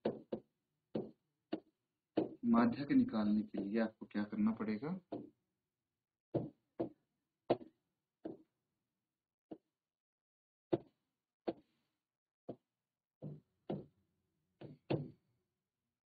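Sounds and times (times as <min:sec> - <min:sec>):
stylus tapping on screen: 0:00.0 - 0:05.3, 0:06.4 - 0:08.5, 0:11.5 - 0:11.7.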